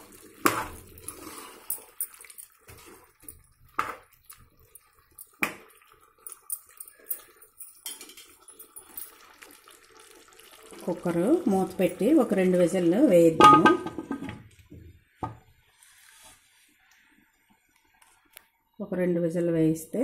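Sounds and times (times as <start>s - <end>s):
spoon stirring curry: 0.0s - 7.5s
spoon knocking against pot: 13.4s - 14.4s.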